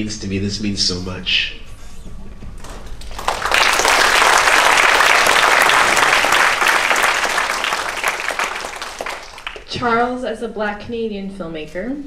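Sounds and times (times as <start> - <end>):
audience applause: 3.0 - 9.8.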